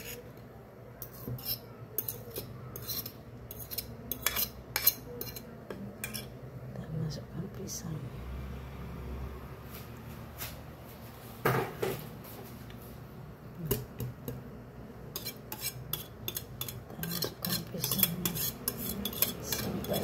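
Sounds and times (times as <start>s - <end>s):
whisk scraping and clinking on crockery: 0.0s - 0.4s, 1.0s - 6.4s, 15.1s - 20.0s.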